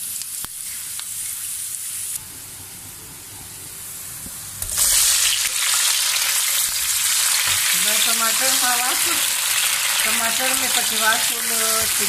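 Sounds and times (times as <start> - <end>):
onions sizzling in hot oil: 0.0 - 2.2, 3.9 - 12.0.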